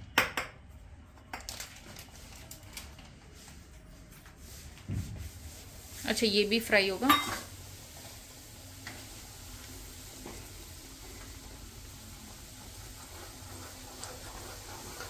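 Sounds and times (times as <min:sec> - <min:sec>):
wooden spatula stirring: 0:04.2 - 0:15.0
flour sizzling in fat: 0:04.4 - 0:15.0.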